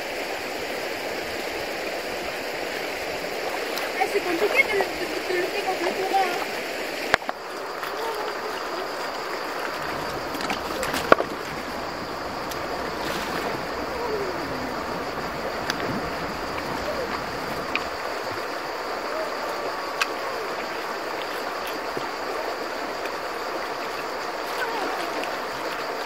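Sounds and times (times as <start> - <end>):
river running over stones: 0.0 - 26.0
water sloshing: 1.2 - 26.0.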